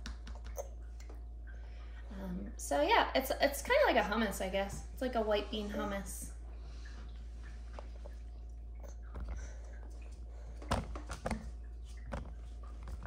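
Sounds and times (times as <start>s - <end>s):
baby mouth smacks: 0.0s - 0.8s
low steady hum: 0.0s - 13.0s.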